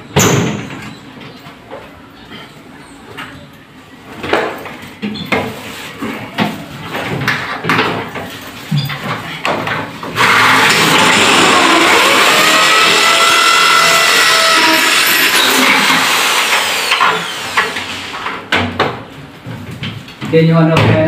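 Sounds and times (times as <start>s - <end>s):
power drill whining: 10.2s - 18.3s.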